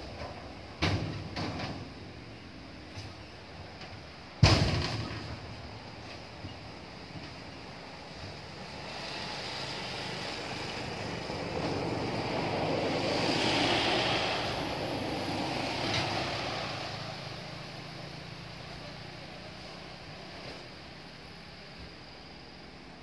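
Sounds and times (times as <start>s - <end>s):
truck driving past: 8.4s - 20.5s.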